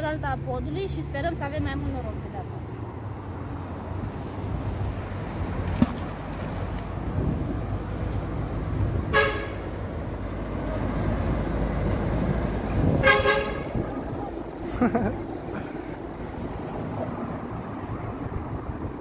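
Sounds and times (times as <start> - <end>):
road traffic rumble: 0.0 - 19.0
vehicle horn toot: 9.1 - 9.6, 13.0 - 13.7.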